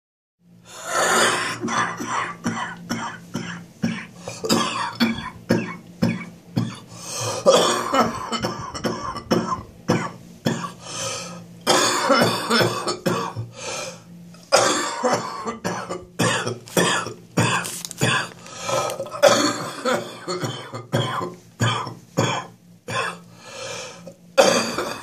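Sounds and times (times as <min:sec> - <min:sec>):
person coughing: 0:00.9 - 0:10.8, 0:11.6 - 0:13.5, 0:14.5 - 0:23.3, 0:24.4 - 0:25.0.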